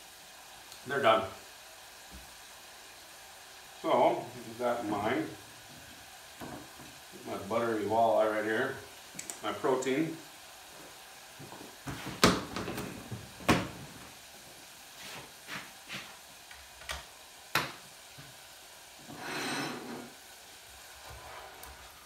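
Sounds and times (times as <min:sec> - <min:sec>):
faint frying: 0:00.0 - 0:22.0
food sizzling in deep fryer: 0:00.0 - 0:22.0
utensils and cookware clattering: 0:19.0 - 0:20.2.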